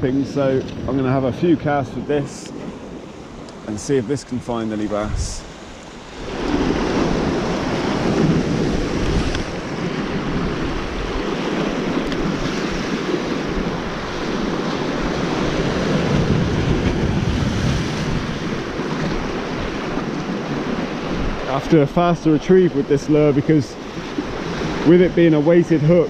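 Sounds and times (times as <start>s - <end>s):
wind buffeting microphone: 0.0s - 26.0s
sea swell washing over rocks: 4.5s - 22.1s.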